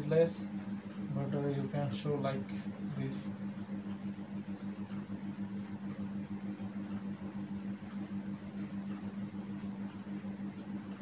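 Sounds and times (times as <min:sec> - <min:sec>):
steady low hum: 0:00.0 - 0:11.0
faint high tick: 0:02.5 - 0:11.0.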